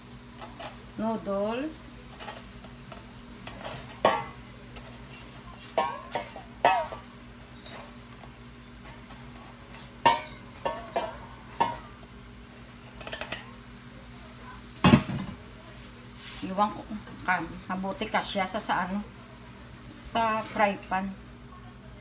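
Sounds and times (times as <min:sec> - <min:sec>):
metal bowl clanking against pan: 0:02.1 - 0:08.0, 0:09.8 - 0:12.1, 0:12.7 - 0:13.5.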